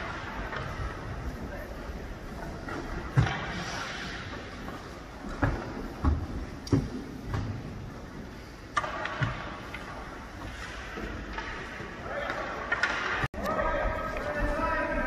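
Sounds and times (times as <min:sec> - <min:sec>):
skate blade scraping ice: 0:03.3 - 0:04.6.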